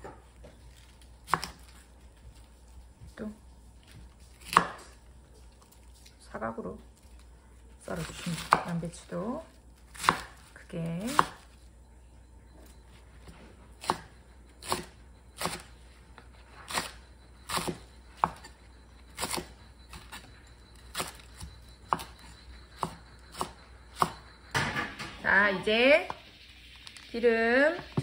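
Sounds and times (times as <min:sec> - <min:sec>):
knife chopping on wooden board: 0:04.4 - 0:04.8, 0:11.1 - 0:11.4, 0:21.9 - 0:22.2, 0:22.8 - 0:24.8.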